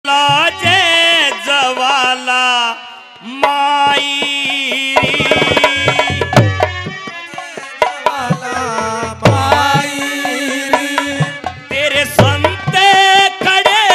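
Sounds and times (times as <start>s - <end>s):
hand-drum strokes: 3.3s - 13.9s
heavy low drum beats: 3.4s - 13.9s.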